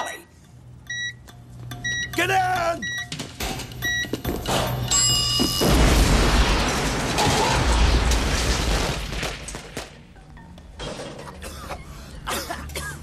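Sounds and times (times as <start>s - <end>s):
debris crackling and clattering: 4.4s - 11.4s
loud explosion with shattering: 5.6s - 10.0s.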